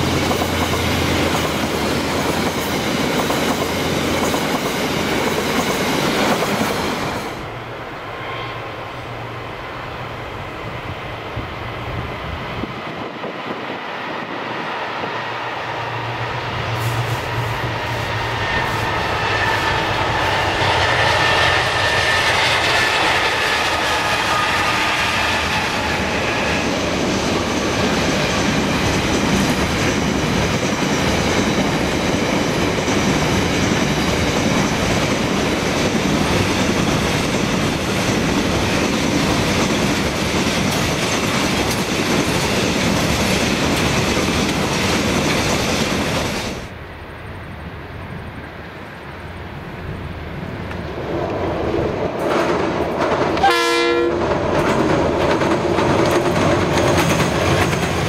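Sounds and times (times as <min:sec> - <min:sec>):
diesel locomotive passing: 0:00.0 - 0:58.0
train wagons rumbling: 0:00.0 - 0:58.0
wheels clacking over rail joints: 0:50.6 - 0:53.6, 0:54.2 - 0:58.0.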